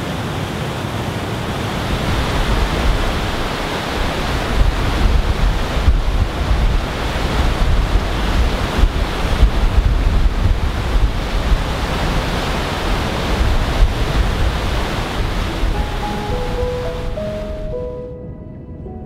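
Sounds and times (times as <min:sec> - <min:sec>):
wind buffeting microphone: 0:01.4 - 0:19.0
soft sustained music notes: 0:15.4 - 0:19.0.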